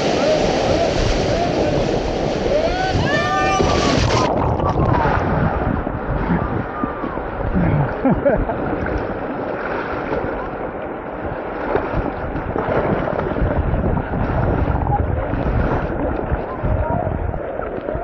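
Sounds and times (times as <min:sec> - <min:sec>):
rushing whitewater: 0:00.0 - 0:18.0
wind buffeting microphone: 0:00.0 - 0:18.0.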